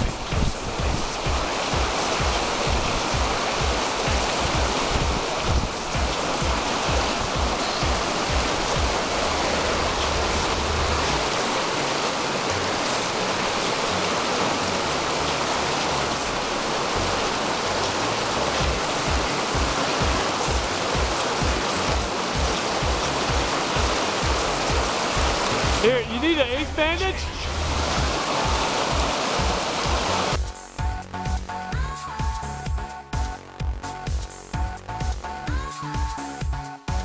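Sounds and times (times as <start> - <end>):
rushing mountain stream: 0.0 - 37.0
wind buffeting microphone: 2.7 - 11.5.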